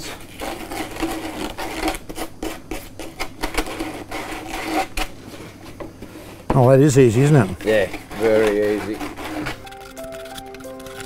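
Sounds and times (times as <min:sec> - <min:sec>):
sandpaper scratching plastic pipe: 0:00.0 - 0:05.4, 0:07.3 - 0:11.0.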